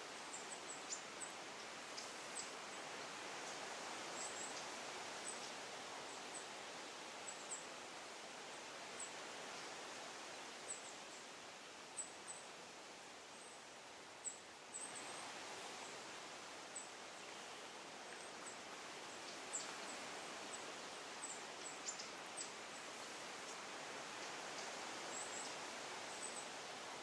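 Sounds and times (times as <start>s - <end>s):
steady soft hiss: 0.0s - 27.0s.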